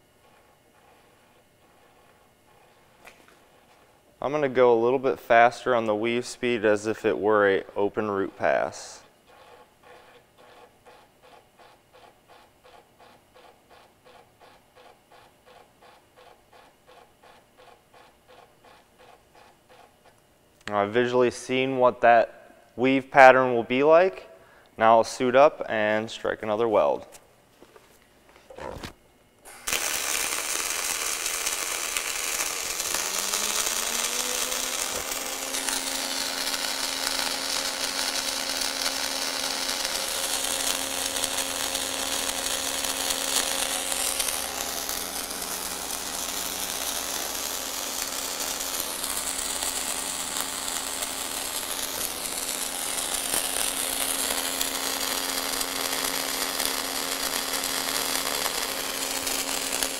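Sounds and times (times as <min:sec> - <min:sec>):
welding arc hiss and crackle: 0:00.0 - 0:09.1, 0:29.4 - 0:59.9
motor whine: 0:29.5 - 0:59.9.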